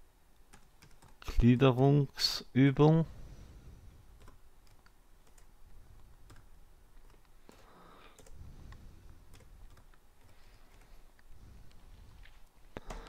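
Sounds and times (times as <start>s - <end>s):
slow typing on a keyboard: 0.4s - 1.3s, 4.2s - 11.8s, 12.8s - 13.0s.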